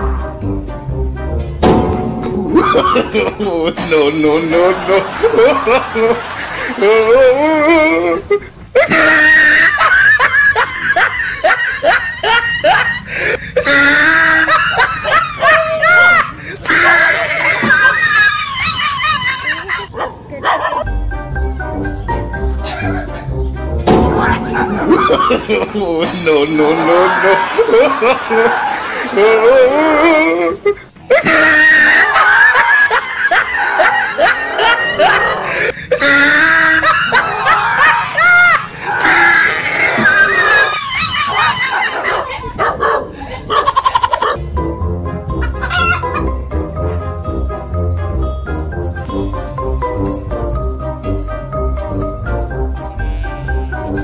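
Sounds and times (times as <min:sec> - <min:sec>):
music: 0:00.0 - 0:06.0, 0:20.8 - 0:27.6, 0:44.2 - 0:54.0
person laughing hard: 0:02.4 - 0:19.9, 0:24.5 - 0:42.4.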